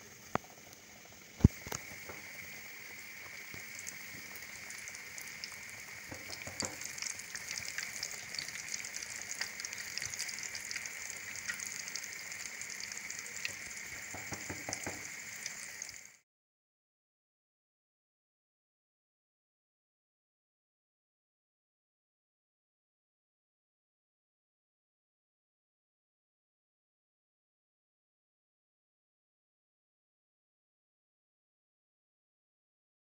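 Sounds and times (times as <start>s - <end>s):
food sizzling in hot oil: 0.0s - 16.2s
sharp knock: 14.1s - 15.0s.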